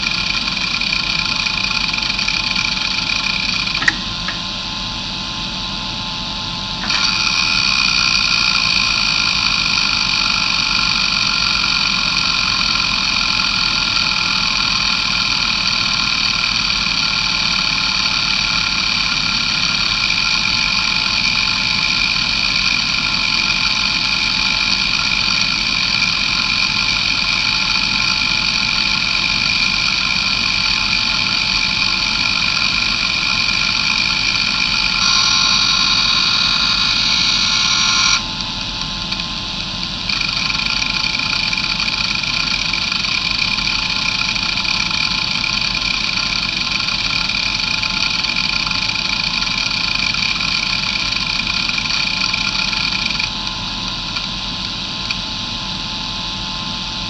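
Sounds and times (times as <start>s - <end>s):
hard drive spindle whine: 0.0s - 57.0s
hard drive head seeking: 3.6s - 4.6s, 34.8s - 38.3s.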